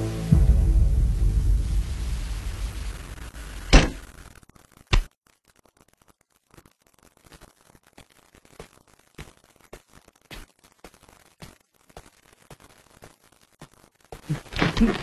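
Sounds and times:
low dark music drone: 0:00.0 - 0:03.4.

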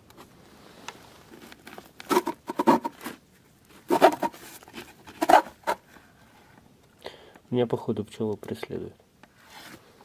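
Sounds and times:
wooden lid scraping open: 0:02.0 - 0:03.2, 0:03.8 - 0:05.9.

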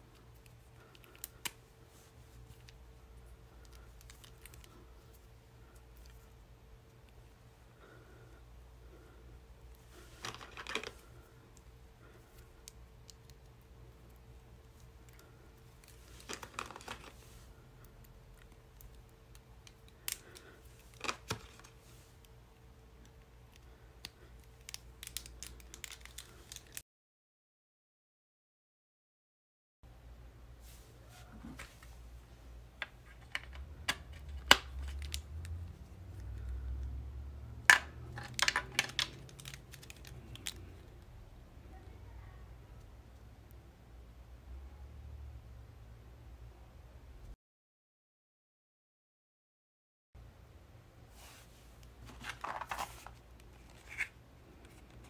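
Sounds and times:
faint steady hum: 0:00.0 - 0:26.8, 0:29.9 - 0:47.4, 0:50.2 - 0:55.0
batteries and plugs clicking together: 0:37.7 - 0:40.7.

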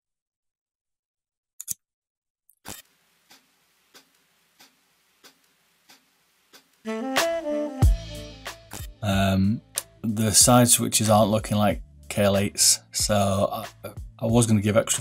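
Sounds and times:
melodic music: 0:06.9 - 0:10.9.

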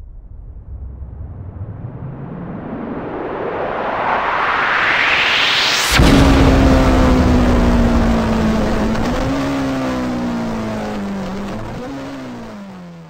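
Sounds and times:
sharp hit: 0:04.0 - 0:12.4
car engine droning: 0:05.8 - 0:13.0.

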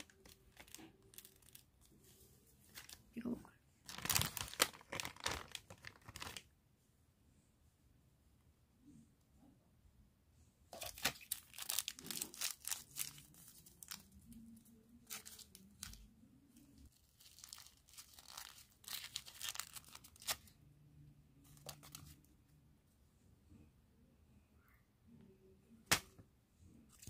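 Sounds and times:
plastic wrapper crinkling and tearing: 0:00.0 - 0:01.8, 0:02.6 - 0:03.0, 0:03.8 - 0:06.5, 0:10.8 - 0:14.4, 0:15.0 - 0:16.0, 0:16.8 - 0:20.6.

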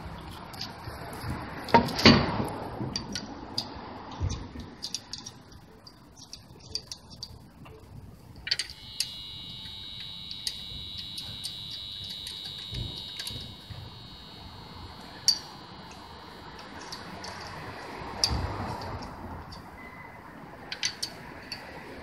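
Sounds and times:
steady high-pitched tone: 0:07.6 - 0:18.8.

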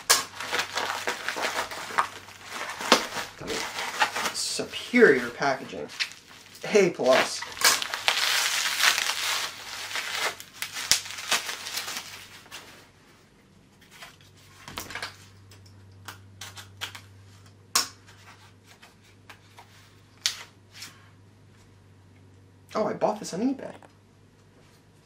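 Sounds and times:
bubble wrap crinkling: 0:00.0 - 0:12.9.

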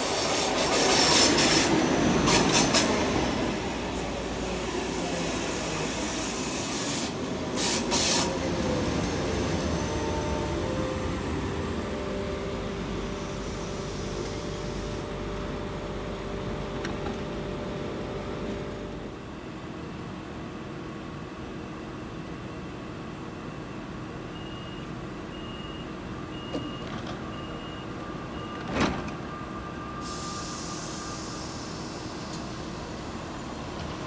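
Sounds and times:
train hum: 0:00.0 - 0:24.3, 0:27.9 - 0:34.0
air hissing: 0:04.1 - 0:08.4
door-warning beeps: 0:24.4 - 0:30.4.

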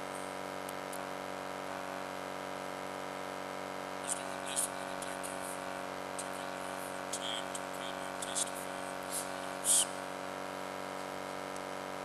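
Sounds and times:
steady background hum: 0:00.0 - 0:12.0
faint hisses: 0:04.0 - 0:10.4.

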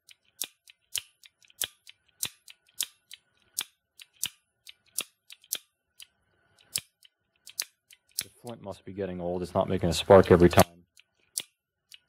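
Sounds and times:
torch sparker clicking: 0:00.4 - 0:08.4.

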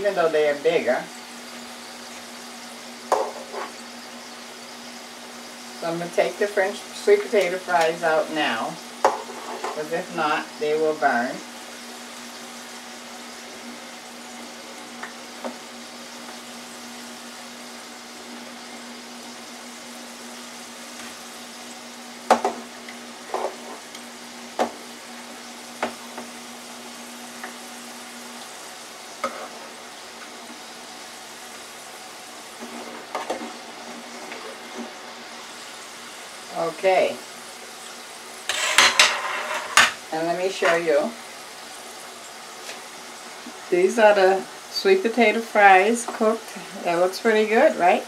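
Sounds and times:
hot oil sizzling: 0:00.0 - 0:48.0.

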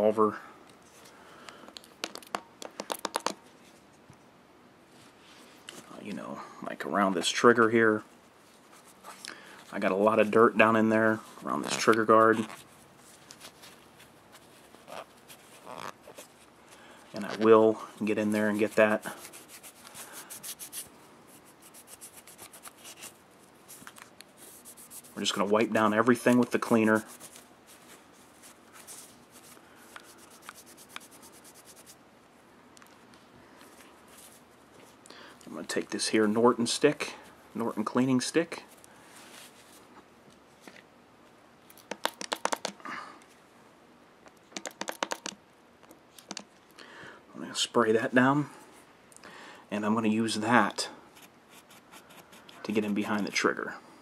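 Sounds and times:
cleaning rag rustling: 0:07.2 - 0:32.0, 0:33.5 - 0:40.7
cloth rag rubbing metal: 0:17.2 - 0:23.2, 0:24.4 - 0:32.0.

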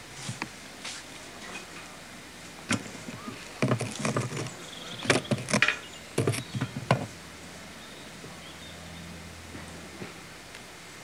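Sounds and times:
faint steady hiss: 0:00.0 - 0:11.0
sharp knocks and clicks: 0:02.7 - 0:07.1.

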